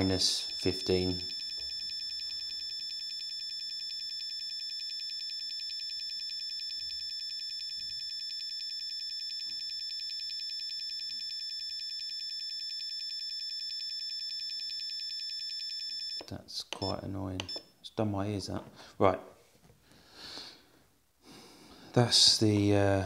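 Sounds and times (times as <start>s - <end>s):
shrill rapid buzzer beeps: 0.0s - 17.8s.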